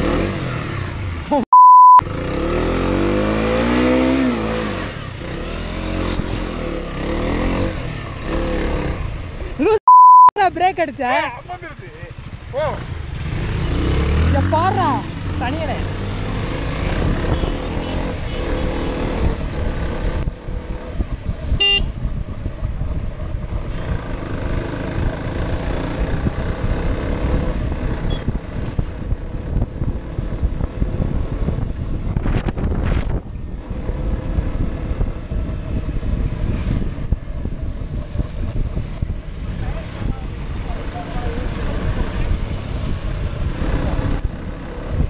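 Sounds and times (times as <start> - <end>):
motorcycle engine: 0.0 - 9.8, 11.1 - 45.0
tyres on wet road: 2.1 - 9.8, 10.6 - 45.0
wind buffeting microphone: 12.1 - 45.0
horn toot: 21.6 - 22.0.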